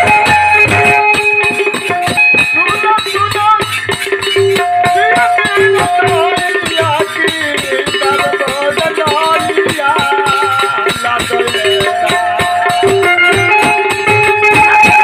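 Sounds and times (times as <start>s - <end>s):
dholak drum beat: 0.0s - 15.0s
harmonium melody: 0.0s - 15.0s
jingling hand cymbals: 0.0s - 15.0s.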